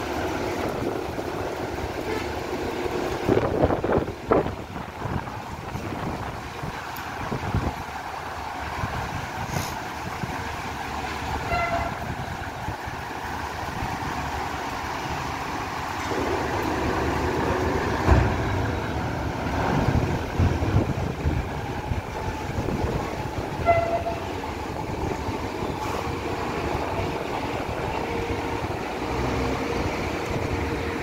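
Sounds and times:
diesel buses running: 0.0s - 31.0s
short horn toot: 11.5s - 12.0s, 23.6s - 24.3s
loud thumps on steel ramp: 18.0s - 18.8s.

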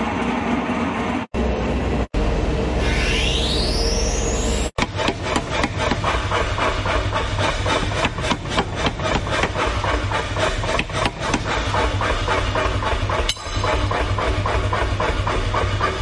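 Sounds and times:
power hammer striking steel: 4.8s - 16.0s.

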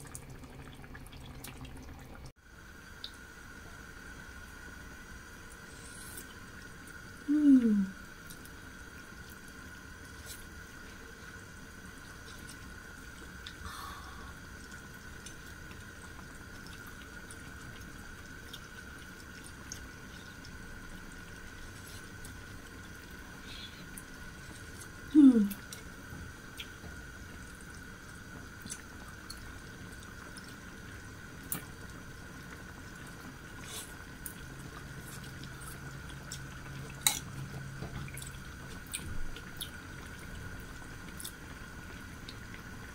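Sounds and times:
person savouring mmm: 7.2s - 8.4s, 23.3s - 25.8s.

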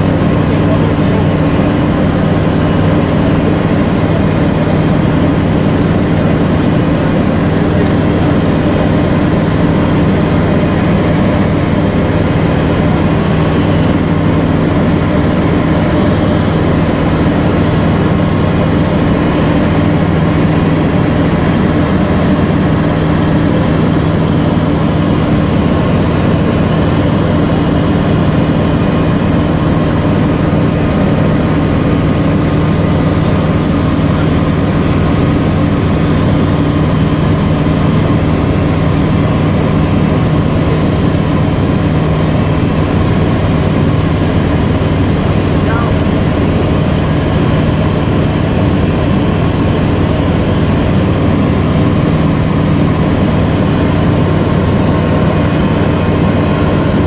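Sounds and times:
propeller engine drone in cockpit: 0.0s - 57.0s.

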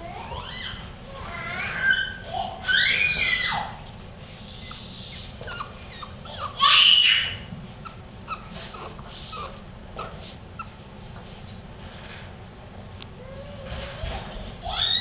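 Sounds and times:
puppies whimpering and yipping: 0.0s - 3.8s, 4.5s - 10.8s, 13.3s - 15.0s
puppy yelp: 0.0s - 3.8s, 4.6s - 10.8s, 14.6s - 15.0s.

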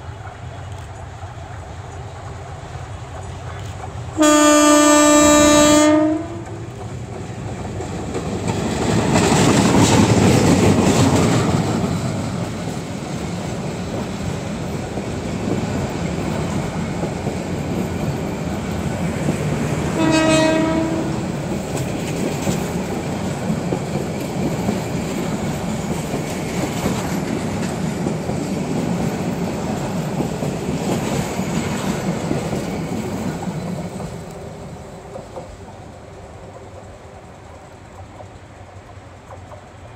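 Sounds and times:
train passing on rails: 0.0s - 39.9s
locomotive horn: 4.2s - 6.7s, 19.9s - 21.4s.

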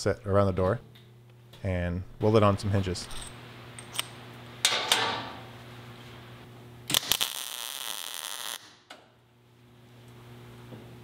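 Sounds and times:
steady low hum: 0.0s - 7.0s
welding arc hissing: 6.9s - 8.7s.

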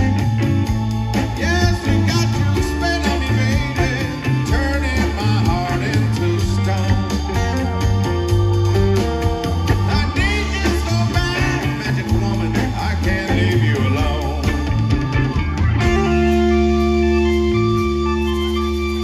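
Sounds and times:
electric guitar bending licks: 0.0s - 19.0s
rock band playing: 0.0s - 19.0s.

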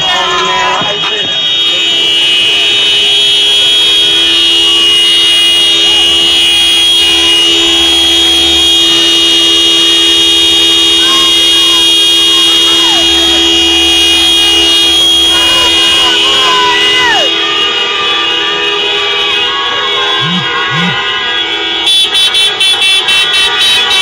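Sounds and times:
car horns blasting: 0.0s - 24.0s
faint shouting: 11.0s - 13.1s, 14.5s - 18.2s, 19.4s - 21.1s.

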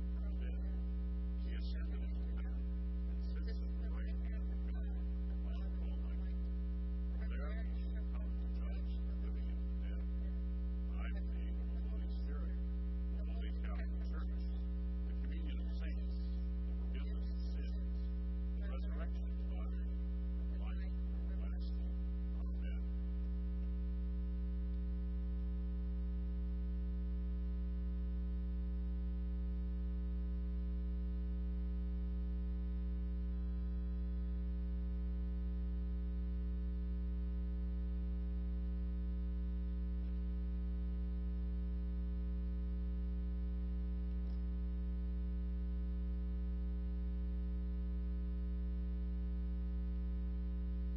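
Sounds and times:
faint voice: 0.0s - 6.4s, 7.1s - 22.9s
electrical mains hum: 0.0s - 50.9s.

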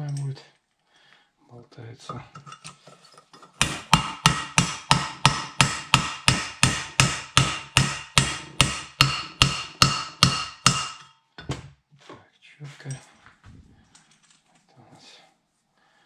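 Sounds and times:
hammer striking steel: 3.6s - 11.1s.

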